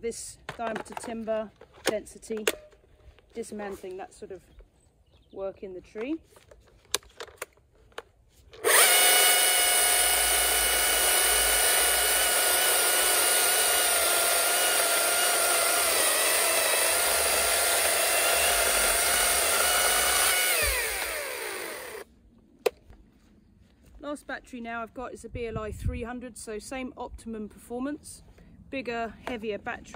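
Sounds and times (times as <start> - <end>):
electric chainsaw cutting a log: 8.6 - 22.1.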